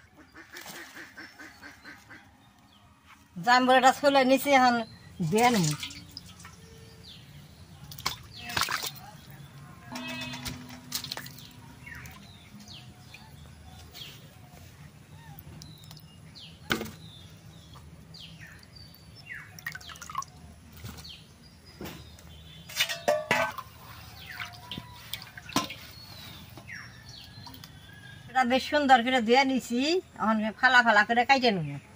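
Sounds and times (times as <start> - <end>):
water sloshing in a steel bowl: 5.2 - 7.0, 7.6 - 13.5, 18.5 - 20.4, 22.6 - 26.5
sharp splashes or knocks: 5.5 - 6.5, 7.9 - 9.0, 9.9 - 12.2.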